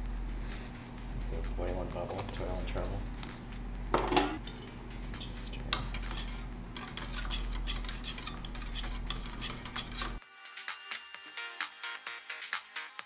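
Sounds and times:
steady low hum: 0:00.0 - 0:10.2
metal tools clinking on dishes: 0:04.0 - 0:05.1.

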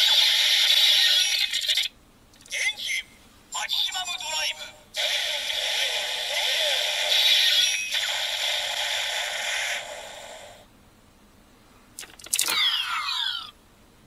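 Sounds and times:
toy speaker hissing crackling effect: 0:05.0 - 0:10.6.

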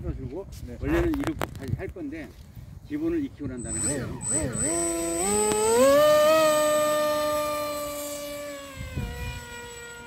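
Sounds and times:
electric motor and propeller whining: 0:03.6 - 0:10.0.

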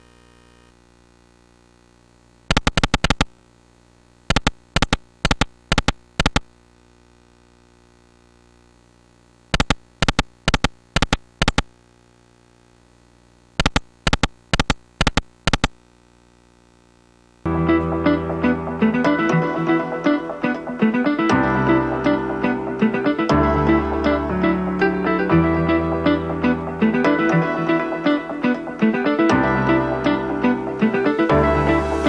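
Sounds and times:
faint steady hum: 0:00.0 - 0:31.2.

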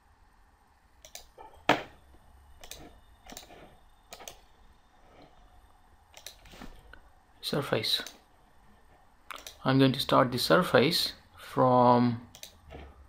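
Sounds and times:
computer mouse clicks: 0:01.0 - 0:01.3, 0:02.6 - 0:04.5, 0:06.1 - 0:07.0, 0:09.3 - 0:09.6, 0:12.3 - 0:12.9.

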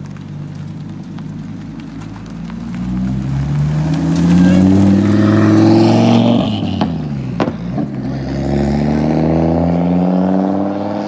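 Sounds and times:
turbocharged car engine revving: 0:02.7 - 0:11.0.

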